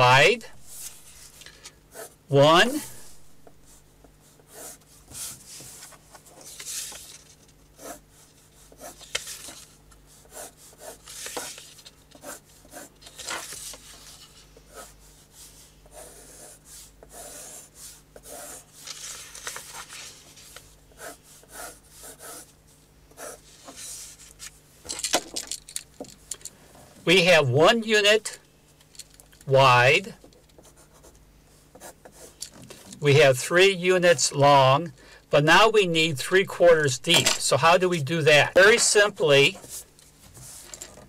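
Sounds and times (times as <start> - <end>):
pencil scratching on paper: 1.9 - 2.2, 3.6 - 5.8, 7.8 - 9.1, 10.1 - 13.5, 14.1 - 18.8, 21.0 - 22.6, 23.2 - 24.2, 30.6 - 32.4.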